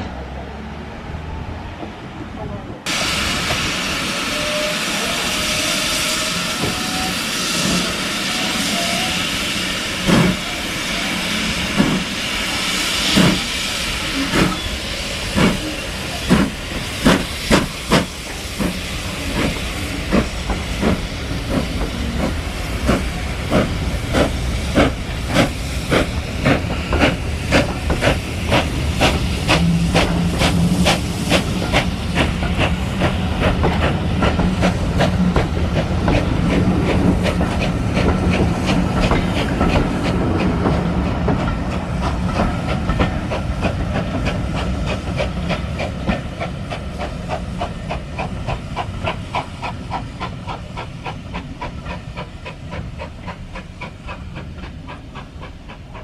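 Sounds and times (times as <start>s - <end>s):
steam hissing: 2.9s - 56.0s
steam locomotive exhaust chuffs: 2.9s - 56.0s.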